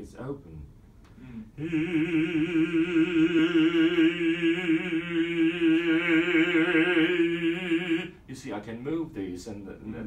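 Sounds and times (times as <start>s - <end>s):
man singing held note: 1.6s - 8.2s.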